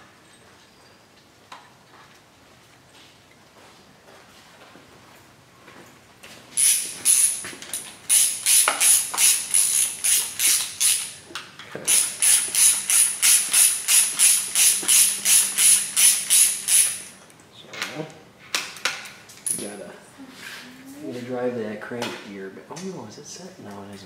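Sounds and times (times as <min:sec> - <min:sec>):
socket ratchet clicking: 0:06.6 - 0:11.2, 0:11.9 - 0:17.2.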